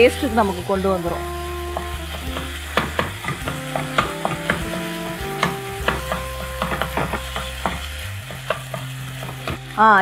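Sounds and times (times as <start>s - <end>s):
light sizzle of frying: 0.0s - 10.0s
soft background music: 0.0s - 10.0s
wooden spatula clacking on wok: 1.8s - 4.8s, 5.4s - 9.6s.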